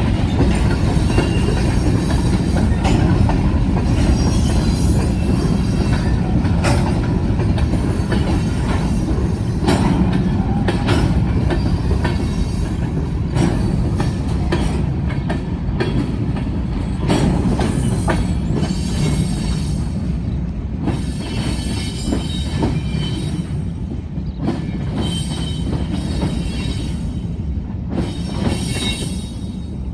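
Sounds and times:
wheels clacking over rail joints: 0.0s - 19.8s
freight cars rumbling: 0.0s - 29.9s
faint high wheel squeal: 1.0s - 2.0s, 4.0s - 6.3s, 21.0s - 23.6s, 24.6s - 27.3s, 28.1s - 29.8s.

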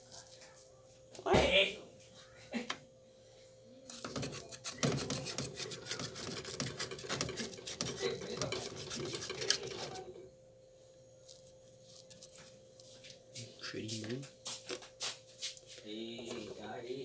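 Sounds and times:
knife scraping metal mold: 3.9s - 10.0s.

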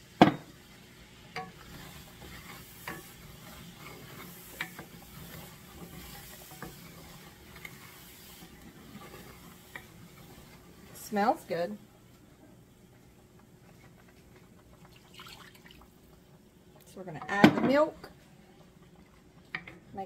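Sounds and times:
wooden spatula scraping skillet: 0.4s - 11.8s.

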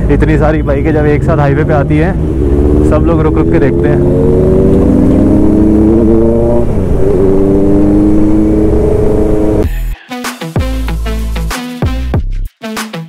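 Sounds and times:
electronic music: 9.6s - 13.0s.

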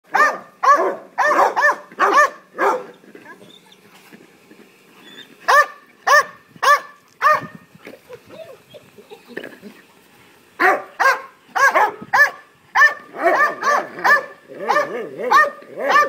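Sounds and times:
dog barking: 0.1s - 2.9s, 5.5s - 7.5s, 10.6s - 16.0s.

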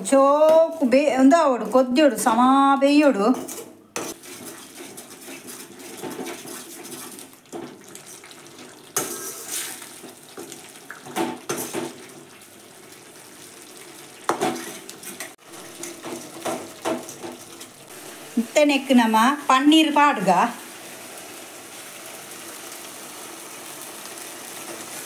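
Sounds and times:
ladle stirring sloshing liquid: 3.4s - 13.3s.

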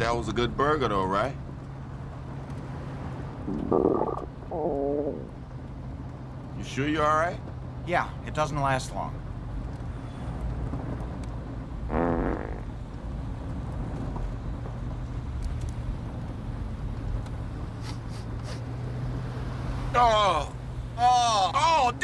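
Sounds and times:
car interior hum: 3.2s - 7.3s
buzzy fart: 3.5s - 4.3s, 11.9s - 12.7s.

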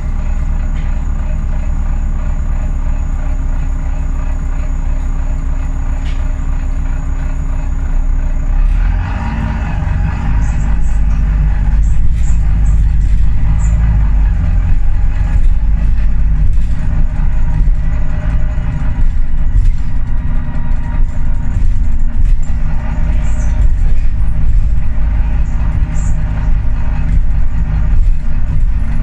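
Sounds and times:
diesel bus engine rumble: 0.0s - 29.0s
body rattles and clicks: 10.2s - 29.0s.

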